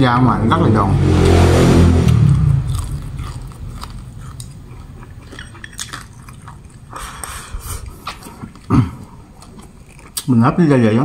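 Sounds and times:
crunchy chewing: 2.6s - 10.5s.

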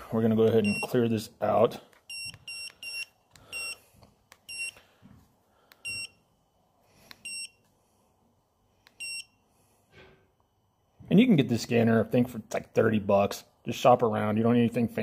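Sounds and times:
short high key beeps: 2.1s - 3.8s, 4.5s - 4.8s, 7.2s - 7.6s, 9.0s - 9.3s.

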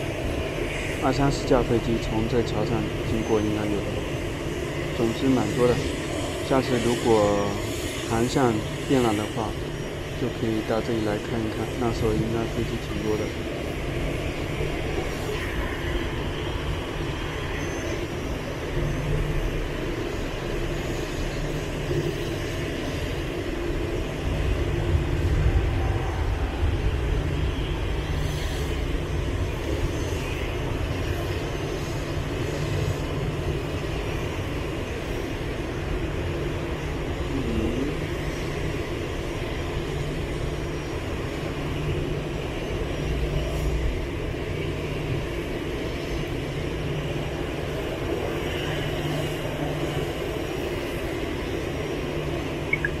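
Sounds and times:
jet engines idling: 0.0s - 53.0s.

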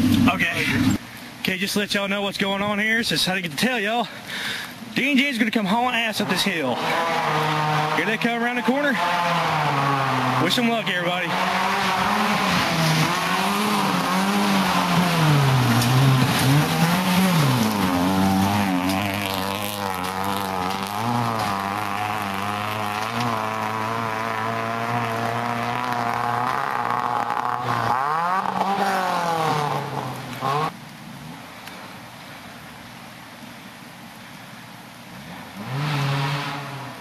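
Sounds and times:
car engine revving: 6.2s - 30.7s, 35.6s - 37.0s.

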